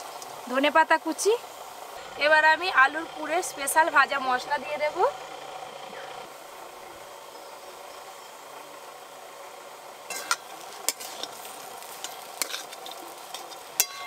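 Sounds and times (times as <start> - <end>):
food sizzling in a pan: 0.0 - 5.3, 6.1 - 14.0
spatula scraping a metal pan: 10.1 - 14.0.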